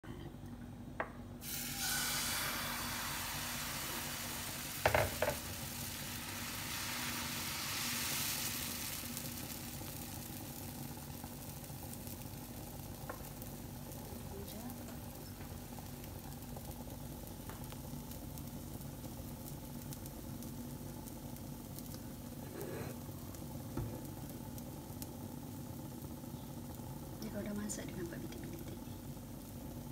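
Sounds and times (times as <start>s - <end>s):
batter sizzling in pan: 1.4s - 29.9s
ladle knocking on pan: 4.8s - 5.4s.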